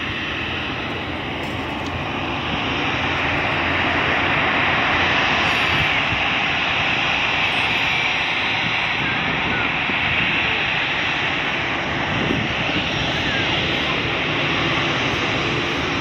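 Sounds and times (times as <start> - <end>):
airliner engines rushing: 0.0 - 16.0.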